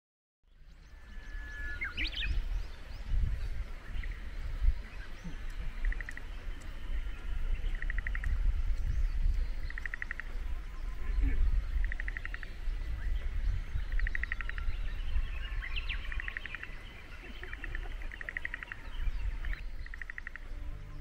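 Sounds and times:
frogs calling in pulsed trills: 0:05.2 - 0:20.7.

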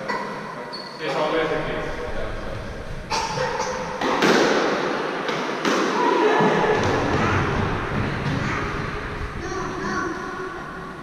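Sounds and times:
squash ball hits: 0:04.0 - 0:09.0.

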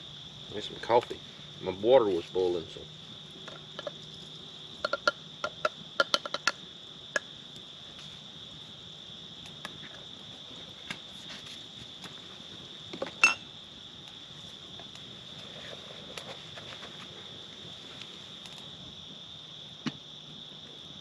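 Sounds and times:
crickets chirring: 0:00.0 - 0:21.0
spoon clinking metal cup: 0:13.2 - 0:13.4.

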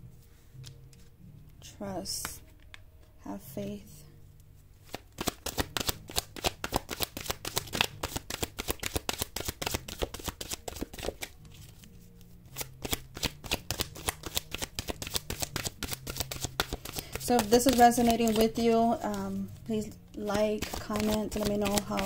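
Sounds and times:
cards shuffling: 0:04.8 - 0:22.0.

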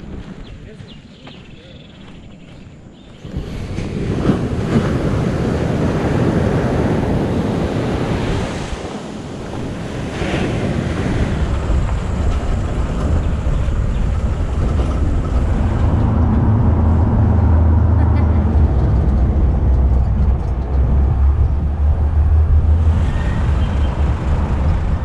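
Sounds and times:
wind buffeting microphone: 0:00.0 - 0:25.0
ocean surf breaking on beach: 0:03.2 - 0:19.7
vehicle engine hum: 0:10.5 - 0:25.0.

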